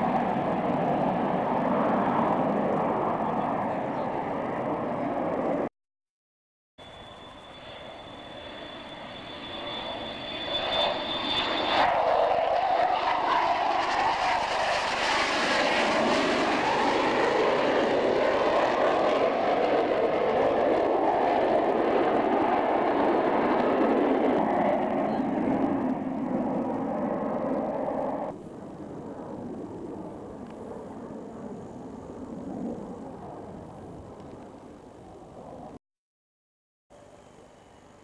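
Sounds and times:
jet engine roar: 0.0s - 5.7s, 6.8s - 35.8s.

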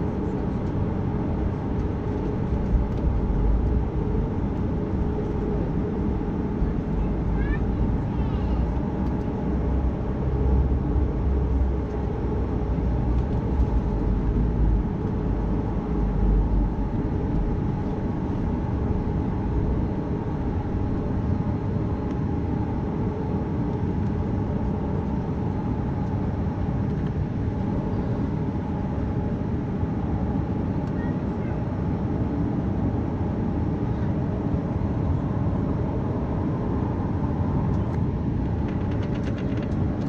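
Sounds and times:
aircraft cabin engine hum: 0.0s - 40.0s
low rumble of rolling on ground: 37.4s - 40.0s.

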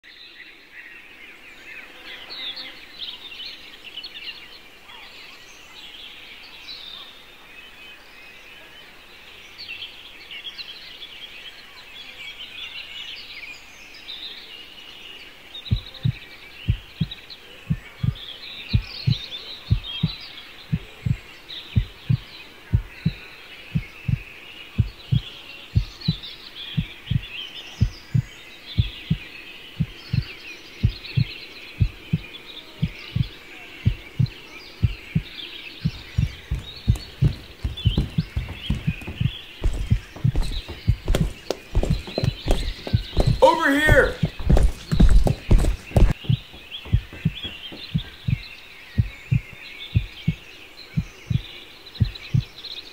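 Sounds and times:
birds singing and chirping: 0.1s - 52.9s
low heavy heartbeat: 15.7s - 21.2s, 21.8s - 26.2s, 26.8s - 50.4s, 51.0s - 52.6s.

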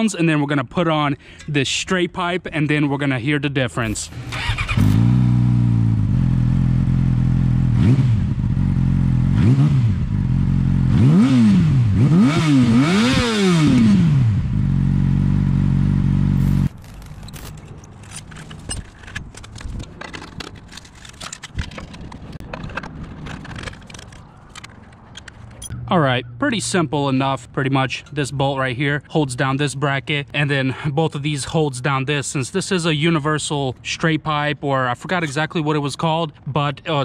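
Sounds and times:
motorcycle engine revving: 4.1s - 17.0s
metal clicks and scrapes: 16.4s - 25.8s.

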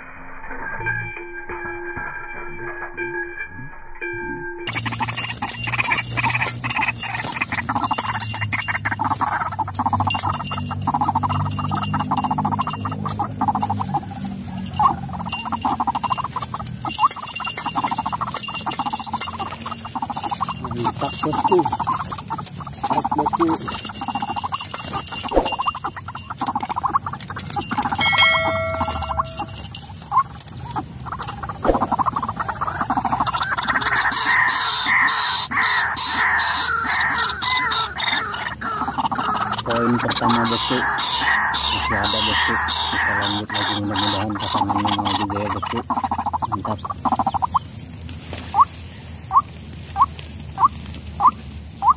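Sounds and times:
steady high-pitched whine: 0.0s - 33.7s
brief ringing tone: 0.5s - 4.8s, 28.0s - 29.6s
bird flapping against wire mesh: 4.7s - 34.1s
fast croaking chatter: 4.7s - 47.6s.

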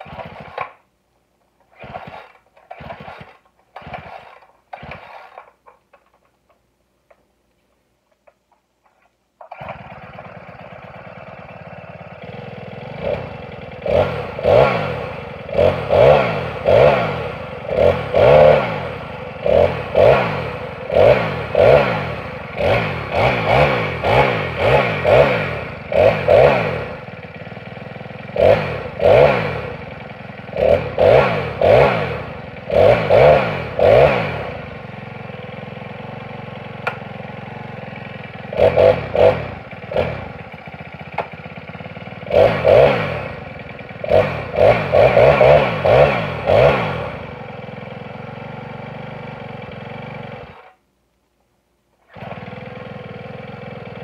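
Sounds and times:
recoil starter cord pulls: 0.0s - 0.9s, 1.5s - 7.2s, 8.1s - 11.5s, 52.1s - 52.8s.

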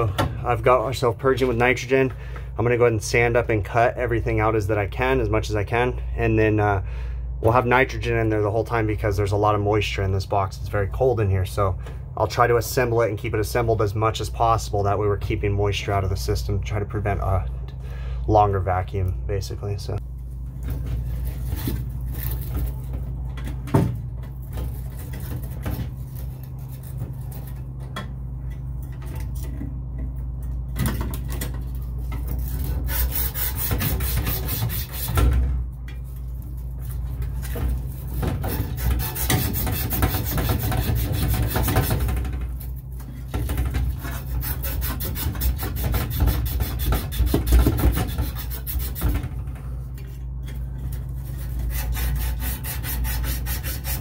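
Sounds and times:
steady low hum: 0.0s - 54.0s
sanding copper pipe: 32.3s - 35.2s, 37.5s - 42.1s, 43.9s - 49.2s, 51.2s - 54.0s.

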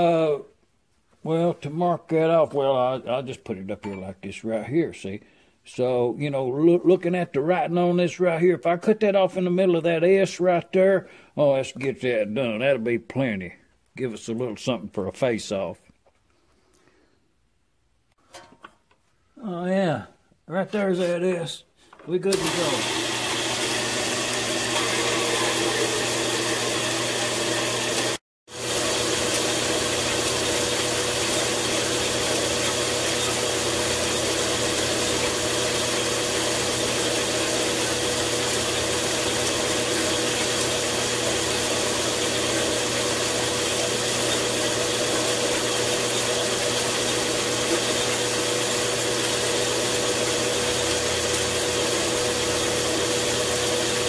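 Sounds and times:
bandsaw cutting metal: 22.2s - 54.0s.

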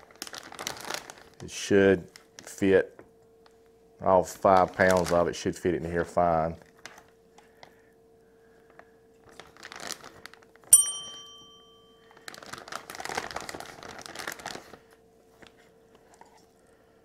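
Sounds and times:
plastic bag crinkling: 0.0s - 2.8s, 4.2s - 7.7s, 8.6s - 11.2s, 12.0s - 15.5s
faint steady hum: 0.0s - 17.0s
sharp metallic ding: 10.7s - 12.0s.

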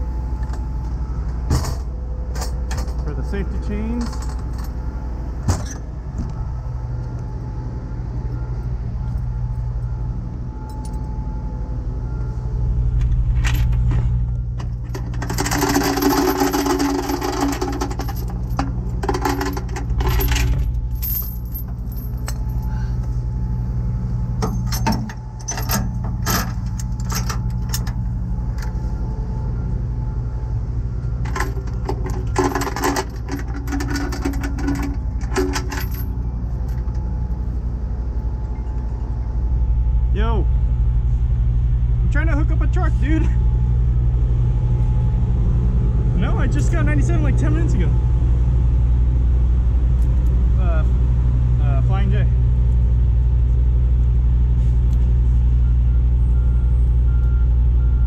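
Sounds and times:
chains jangling and clanking: 4.0s - 4.8s, 14.6s - 22.9s, 24.4s - 28.0s, 31.2s - 37.0s.

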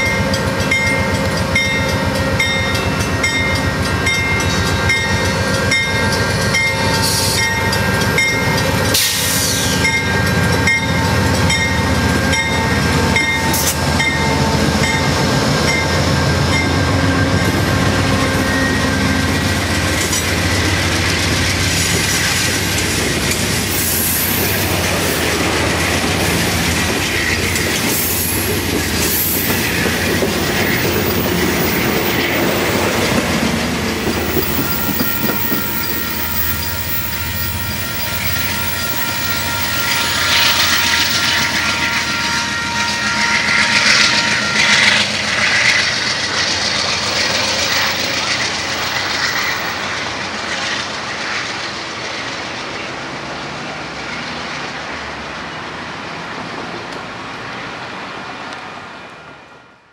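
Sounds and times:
crossing bell ringing: 0.0s - 21.1s, 29.6s - 45.8s
diesel locomotive passing: 0.0s - 59.9s
high wheel squeal: 5.7s - 20.7s, 34.2s - 49.8s
train wheels clicking over rail joints: 19.4s - 36.3s.

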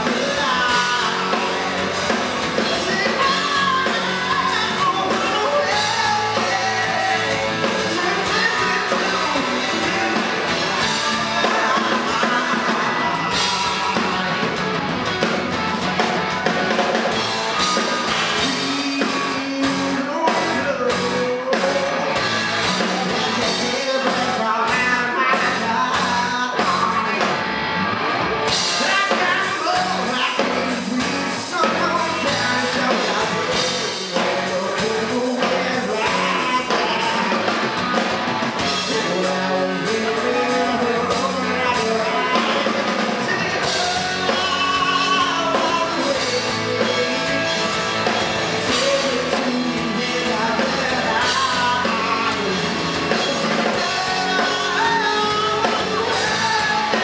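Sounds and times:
man singing: 0.0s - 14.5s, 17.0s - 27.4s, 28.5s - 38.0s, 38.6s - 57.0s
bass guitar: 0.0s - 57.0s
drum kit: 0.0s - 57.0s
electric guitar: 0.0s - 57.0s
live rock band: 0.0s - 57.0s.

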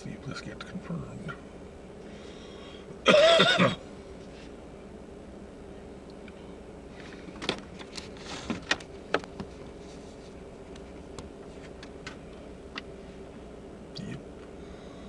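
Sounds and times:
car cabin hum: 2.9s - 14.6s.

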